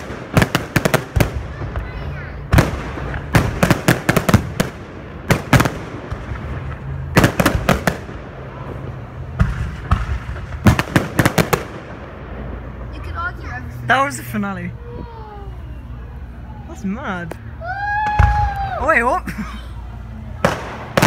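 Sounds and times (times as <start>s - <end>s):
fireworks bursting with sharp bangs: 0.0s - 14.4s, 20.0s - 21.0s.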